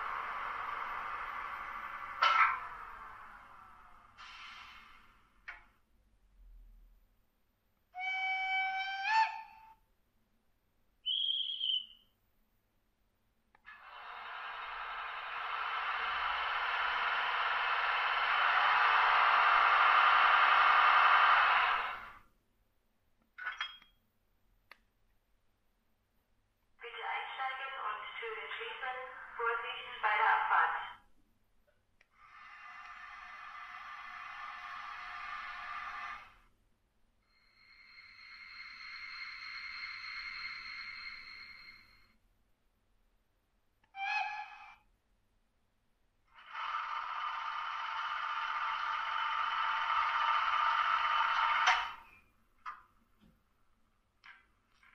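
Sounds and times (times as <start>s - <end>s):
model locomotive running noise: 0.0s - 5.3s, 13.7s - 22.2s, 32.2s - 36.5s, 37.3s - 42.0s, 46.3s - 52.1s
steady hiss with thin whine: 0.0s - 5.4s, 37.3s - 42.0s
short hiss: 4.2s - 5.4s.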